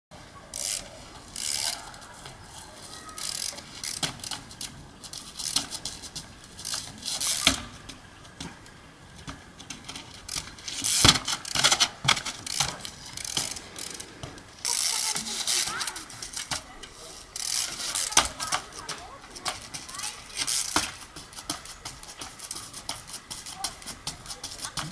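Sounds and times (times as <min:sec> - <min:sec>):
bicycle freewheel ratchet clicking: 0:00.5 - 0:02.1, 0:03.1 - 0:07.9, 0:09.1 - 0:16.6, 0:17.3 - 0:24.9
wheels knocking on rock: 0:03.2 - 0:24.9.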